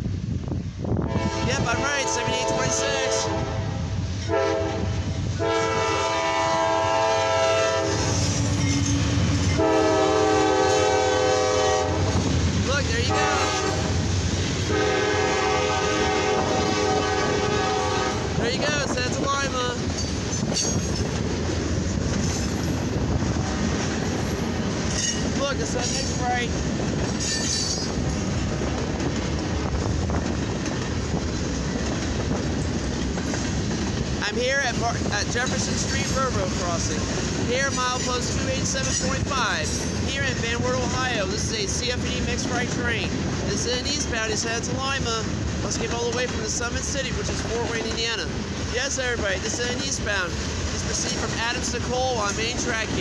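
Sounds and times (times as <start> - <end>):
diesel train rumbling past: 0.0 - 53.0
locomotive air horn blasts: 1.1 - 12.2, 13.1 - 14.0, 14.7 - 18.3.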